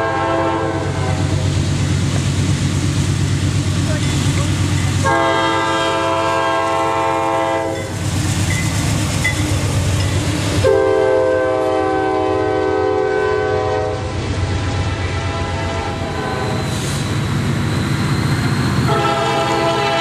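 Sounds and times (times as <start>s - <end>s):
locomotive air horn blasts: 0.0s - 1.4s, 5.0s - 7.9s, 10.6s - 14.2s, 15.0s - 16.8s, 18.9s - 20.0s
passing train rumble: 0.0s - 20.0s.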